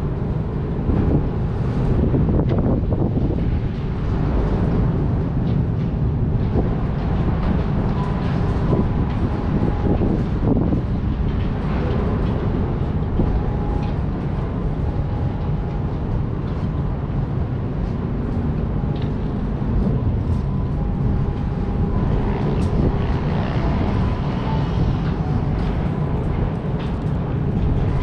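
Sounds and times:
wind rushing over microphone: 0.0s - 28.0s.

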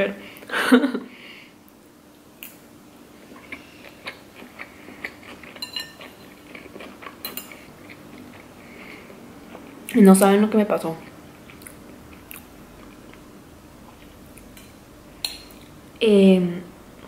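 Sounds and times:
faint steady hum: 0.0s - 17.0s
chewing food: 3.2s - 10.0s, 11.0s - 14.6s.

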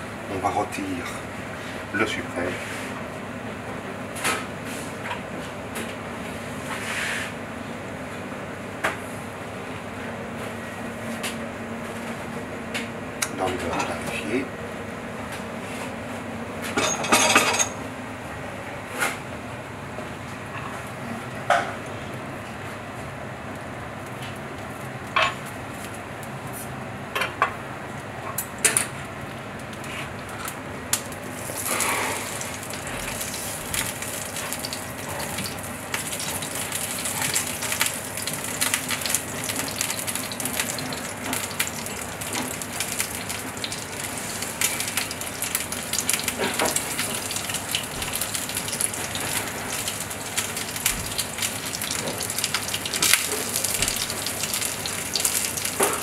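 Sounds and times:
meat sizzling in frying pan: 31.2s - 56.0s.

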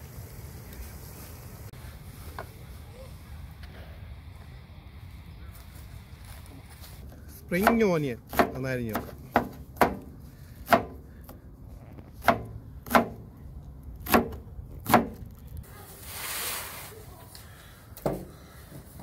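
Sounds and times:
soft hiss: 0.0s - 7.1s, 15.4s - 18.8s.

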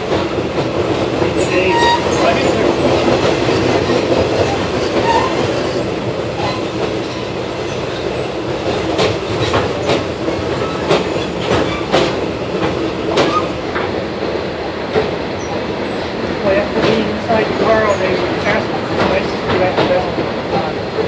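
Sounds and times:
wheels clicking over rail joints: 0.0s - 14.0s
train wheels rumbling on rail: 0.0s - 21.0s.

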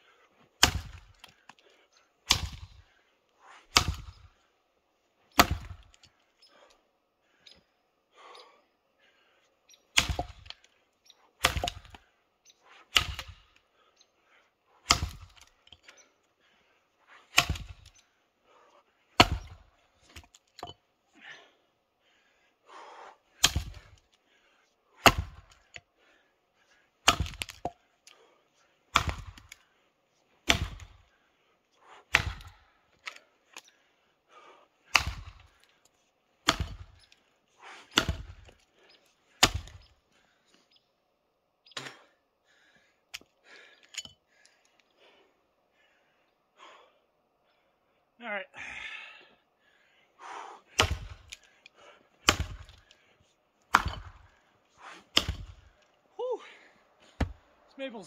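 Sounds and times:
axe chopping into log: 0.6s - 1.1s, 2.3s - 2.7s, 3.7s - 4.2s, 5.4s - 5.8s, 10.0s - 10.6s, 11.4s - 12.0s, 12.9s - 13.4s, 14.9s - 15.4s, 17.3s - 17.9s, 19.2s - 19.6s, 23.4s - 24.0s, 25.0s - 25.5s, 27.0s - 27.7s, 28.9s - 29.6s, 30.4s - 31.0s, 32.1s - 32.6s, 34.9s - 35.5s, 36.4s - 37.0s, 37.9s - 38.6s, 39.4s - 39.8s, 50.7s - 51.4s, 52.2s - 52.8s, 53.7s - 54.3s, 55.0s - 55.6s, 57.2s - 57.4s.

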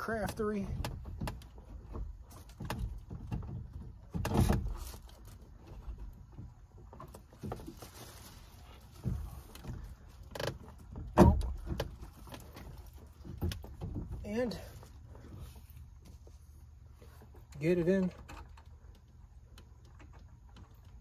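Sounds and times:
clunks and knocks of mirror hardware: 9.0s - 12.6s.

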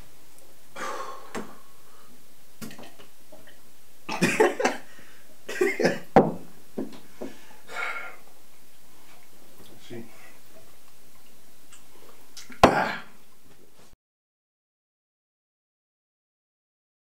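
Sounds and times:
man coughing and spluttering: 4.1s - 4.9s, 5.5s - 6.1s, 12.4s - 13.1s.

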